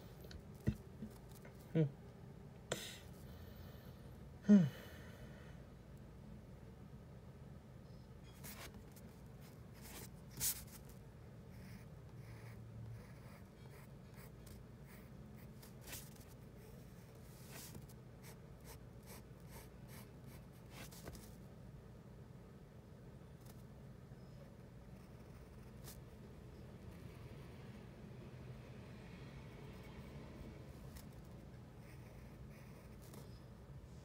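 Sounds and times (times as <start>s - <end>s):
pencil scratching on paper: 11.6s - 16.4s, 30.9s - 33.2s.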